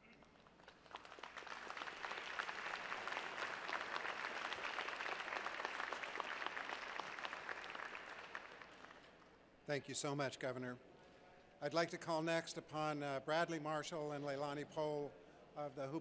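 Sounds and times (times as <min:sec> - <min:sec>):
audience applauding: 0:00.6 - 0:09.1.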